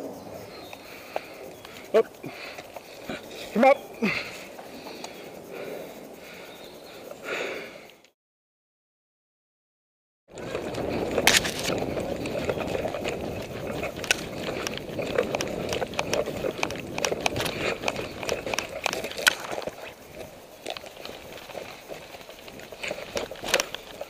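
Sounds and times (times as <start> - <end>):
footsteps on forest path: 0.0 - 8.1, 10.3 - 24.0
clothing and gear rustling: 10.3 - 24.0.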